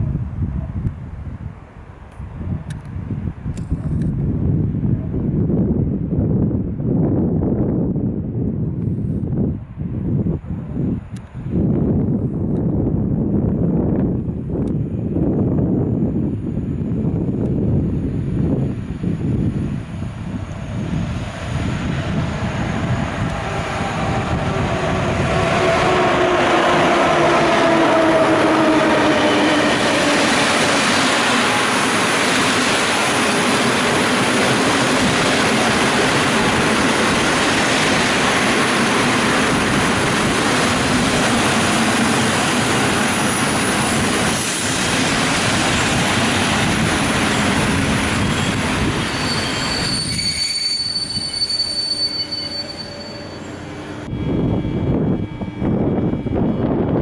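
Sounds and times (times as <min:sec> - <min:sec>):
train wheels rushing on rails: 0:08.8 - 0:57.0
high brake squeal: 0:48.4 - 0:53.8.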